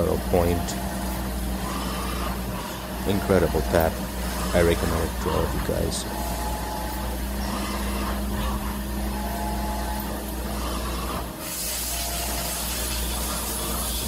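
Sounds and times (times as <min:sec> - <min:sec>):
mill spindle machine hum: 0:00.0 - 0:14.0
coolant spray hissing: 0:11.4 - 0:14.0.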